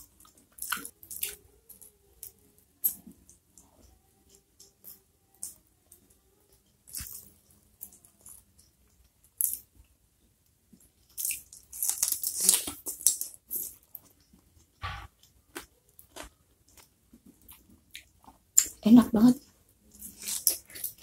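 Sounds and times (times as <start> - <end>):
biting and chewing: 20.0 - 21.0.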